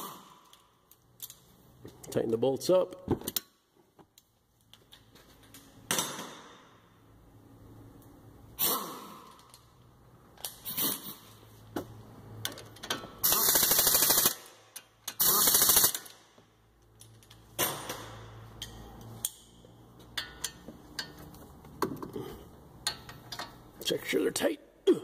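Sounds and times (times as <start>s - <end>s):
tools clicking and knocking: 0.4s - 2.2s, 11.8s - 13.2s, 14.7s - 15.2s, 16.8s - 23.7s.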